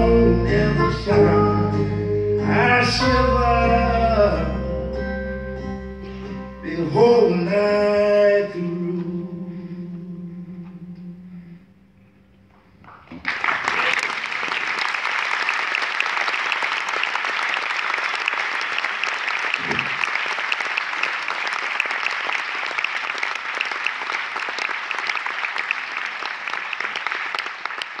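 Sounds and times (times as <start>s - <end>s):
audience applauding: 12.9s - 28.0s.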